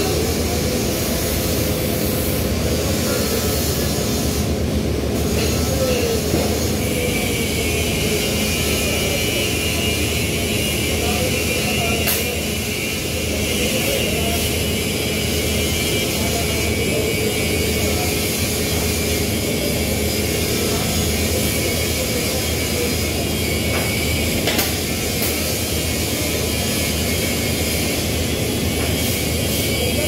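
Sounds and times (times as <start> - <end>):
steady mechanical roar: 0.0 - 30.0.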